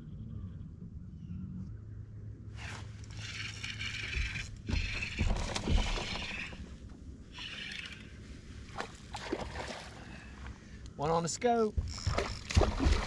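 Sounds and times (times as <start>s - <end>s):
fishing reel whirring: 2.6s - 6.7s, 7.3s - 8.2s, 11.9s - 12.5s.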